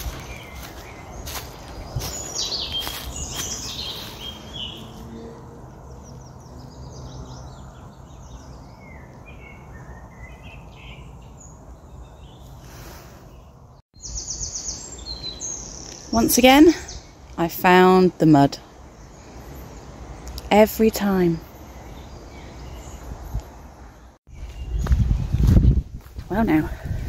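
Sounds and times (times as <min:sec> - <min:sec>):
footsteps crunching in dry leaves: 0:00.0 - 0:05.1, 0:24.3 - 0:26.3
birds chirping and singing: 0:00.0 - 0:27.0.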